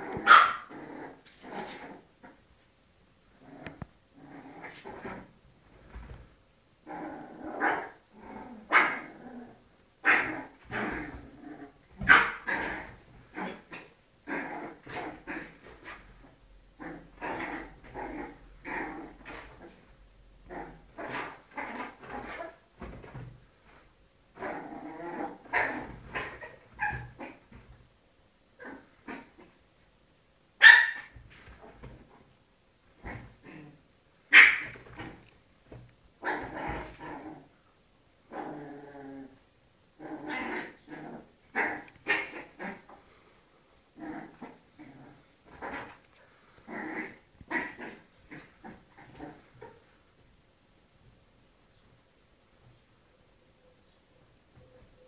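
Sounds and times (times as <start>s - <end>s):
small dogs barking: 0.0s - 0.8s, 8.6s - 9.1s, 10.0s - 11.0s, 12.0s - 14.0s, 30.6s - 31.2s, 34.3s - 34.9s.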